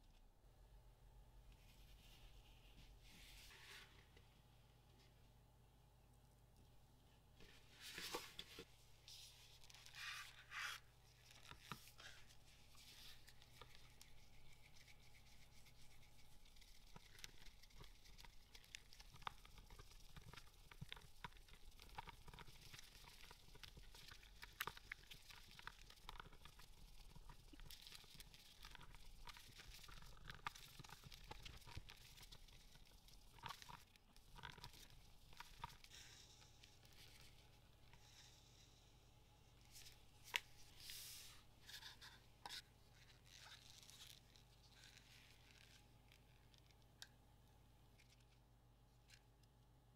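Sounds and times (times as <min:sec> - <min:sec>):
stick stirring in plastic cup: 0:07.4 - 0:47.4.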